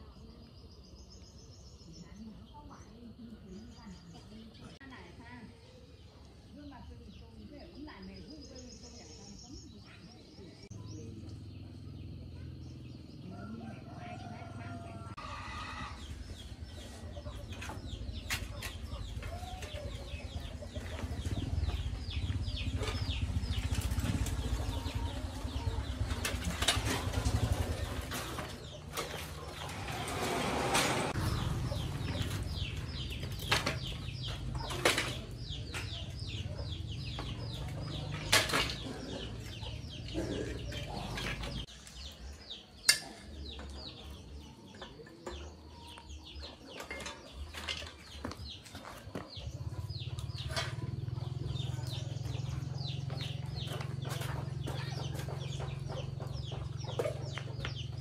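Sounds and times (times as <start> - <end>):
old bicycle clanking and rattling: 16.3 - 42.1, 42.8 - 58.0
bicycle knocking on concrete: 17.4 - 40.0, 46.2 - 58.0.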